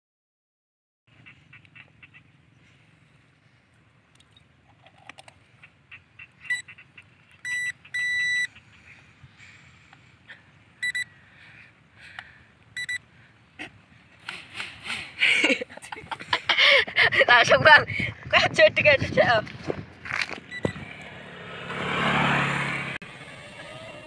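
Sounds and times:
remote controller beeps: 6.5 - 6.7, 7.4 - 8.5, 10.8 - 11.1, 12.8 - 13.0, 20.5 - 20.9.

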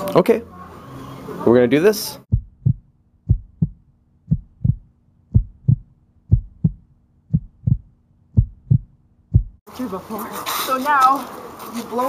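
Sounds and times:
heartbeat double thump: 2.3 - 9.6.

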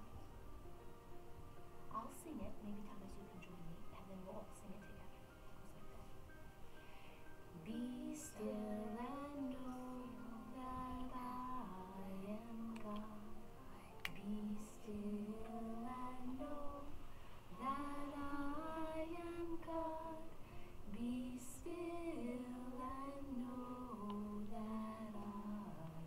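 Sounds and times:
woman singing slow melody: 7.5 - 26.0.

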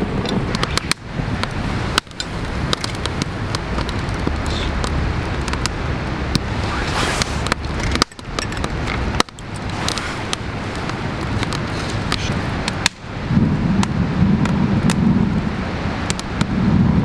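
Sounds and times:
low rumble: 0.0 - 17.0
wood fire crackling: 0.0 - 17.0
sharp pops: 0.2 - 13.1.

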